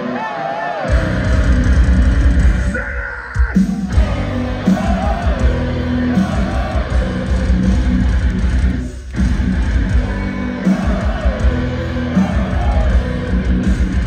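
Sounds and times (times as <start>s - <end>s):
metal band playing live: 0.0s - 14.0s
voices yelling: 2.7s - 7.4s.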